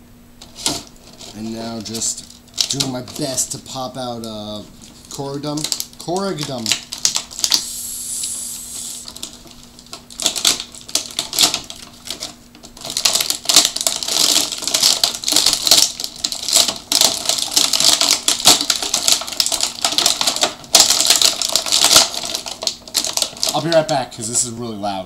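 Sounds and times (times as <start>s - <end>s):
plastic blister packaging crackling: 0.4s - 24.6s.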